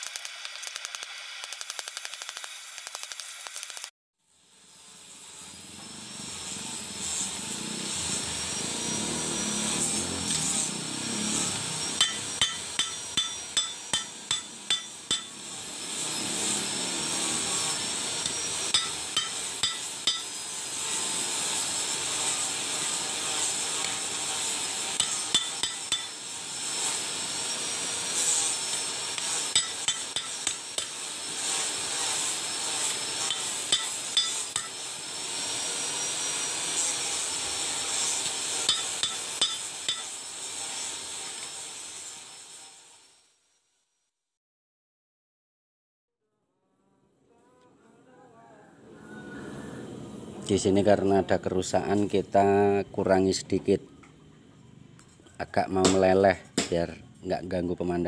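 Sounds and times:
hammer striking metal: 12.0s - 15.4s, 18.2s - 20.4s, 25.0s - 26.2s, 29.2s - 31.0s, 33.2s - 34.8s, 38.7s - 40.2s, 55.8s - 56.8s.

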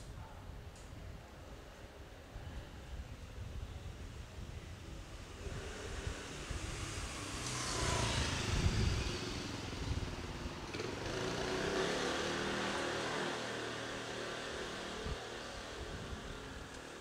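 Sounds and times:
motor vehicles passing: 5.1s - 17.0s.

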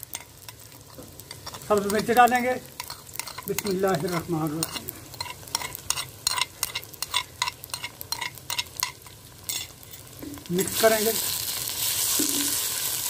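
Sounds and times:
vegetables sizzling in hot oil: 0.0s - 13.0s
fork scraping and tapping bowl: 0.1s - 2.1s, 2.8s - 10.3s.

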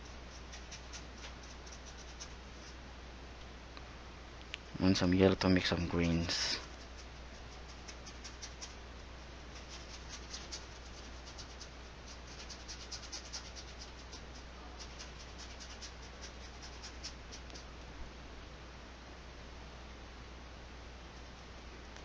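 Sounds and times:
brush working paint on palette: 0.0s - 2.8s, 5.7s - 17.8s
faint low hum: 0.0s - 22.0s
paintbrush dabbing on canvas: 6.0s - 17.7s.

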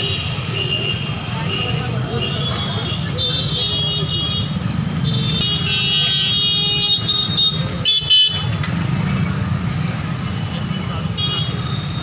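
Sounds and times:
vehicle horns tooting: 0.0s - 8.6s, 10.4s - 12.0s
traffic rumble: 0.0s - 12.0s.

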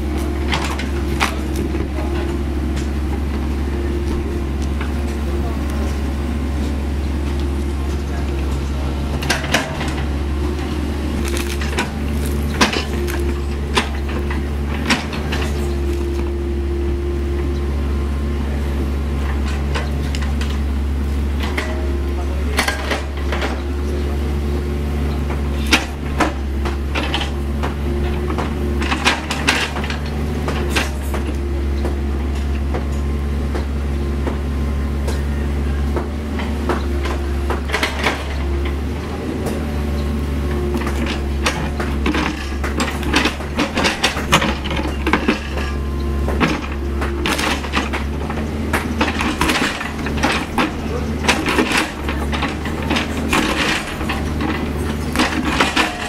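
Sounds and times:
diesel engine running: 0.0s - 56.0s
steel bucket clanking on stones: 46.4s - 56.0s.

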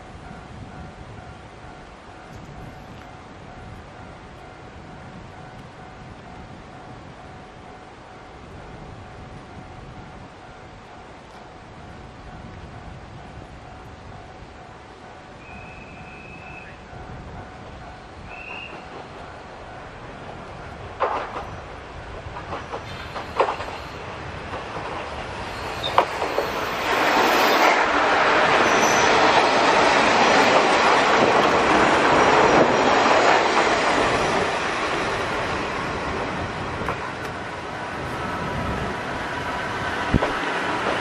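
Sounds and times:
train running noise: 0.0s - 41.0s
train wheel clicks over rail joints: 21.0s - 33.8s.

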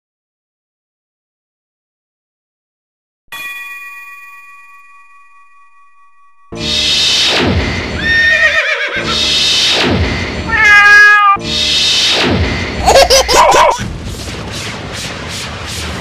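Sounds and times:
animal-like cries: 10.5s - 11.4s
falling whooshes: 11.5s - 16.0s.

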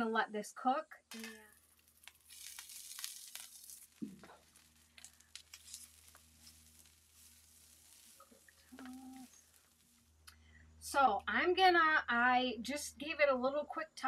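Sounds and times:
beans sizzling on a griddle: 1.1s - 10.6s.

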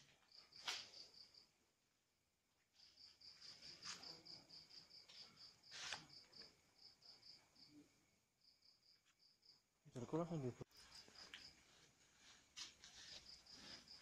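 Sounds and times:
cricket chirping: 0.0s - 14.0s.

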